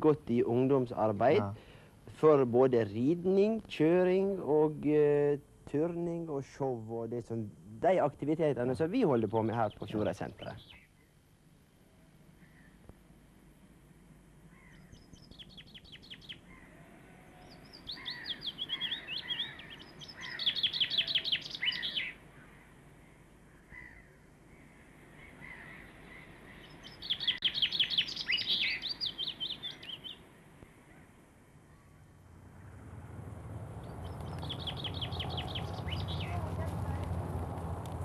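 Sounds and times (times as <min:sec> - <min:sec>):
songbird singing high trills: 0:14.7 - 0:16.6, 0:17.3 - 0:22.2, 0:25.4 - 0:30.2, 0:33.8 - 0:36.6.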